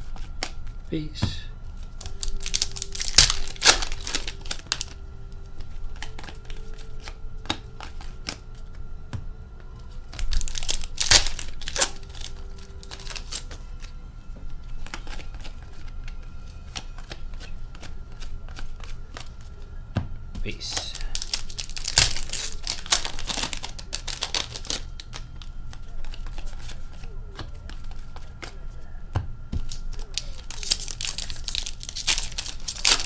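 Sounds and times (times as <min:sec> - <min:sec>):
cards shuffled by hand: 0:00.0 - 0:00.8, 0:01.8 - 0:05.0, 0:05.6 - 0:08.8, 0:10.0 - 0:13.9, 0:14.6 - 0:19.6, 0:20.5 - 0:28.7, 0:29.6 - 0:33.0
foil packs crinkling and tearing: 0:01.8 - 0:05.0, 0:05.6 - 0:08.5, 0:10.0 - 0:13.9, 0:20.7 - 0:28.6, 0:29.6 - 0:33.0.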